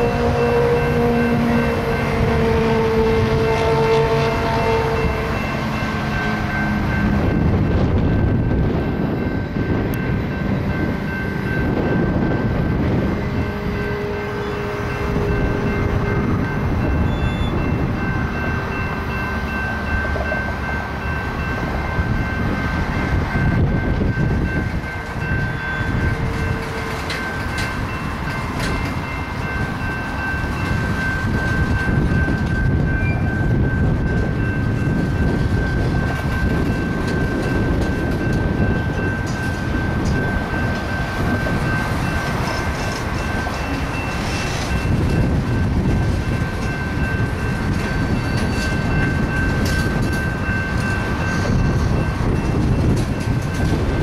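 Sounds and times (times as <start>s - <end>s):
train wheels rumbling on rail: 0.0s - 54.0s
thin high squeal: 17.0s - 17.6s.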